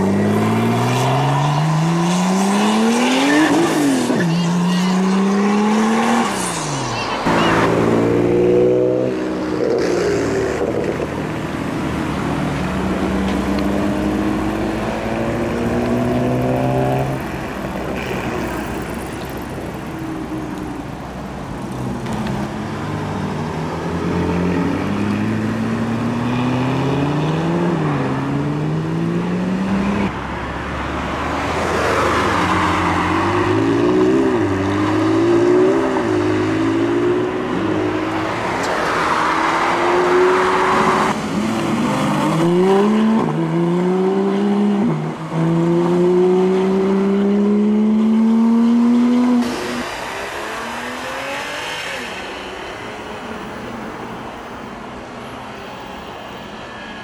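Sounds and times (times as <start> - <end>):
sports car engines accelerating: 0.0 - 20.8, 31.2 - 52.3.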